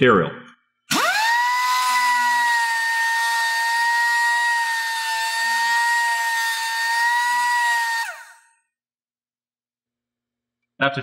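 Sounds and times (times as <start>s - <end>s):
die grinder whining: 0.9s - 8.5s.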